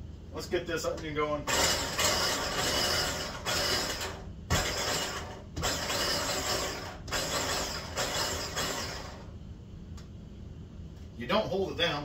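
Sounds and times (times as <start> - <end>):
electric food chopper bursts: 1.5 - 9.3.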